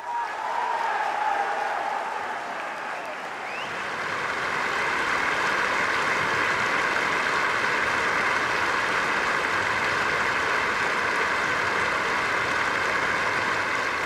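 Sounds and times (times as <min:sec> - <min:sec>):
crowd applauding: 0:00.0 - 0:14.0.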